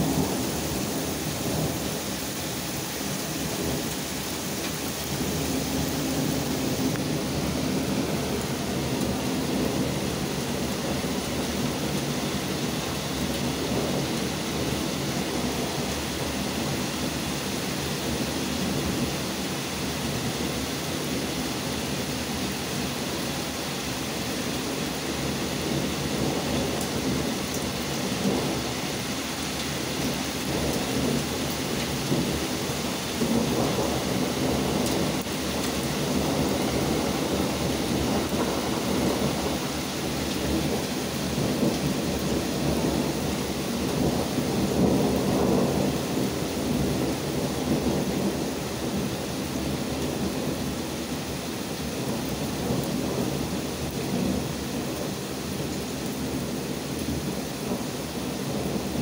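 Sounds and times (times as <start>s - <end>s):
thunder rumbling: 0.0s - 17.2s, 29.9s - 51.2s
heavy rain falling: 0.0s - 59.0s.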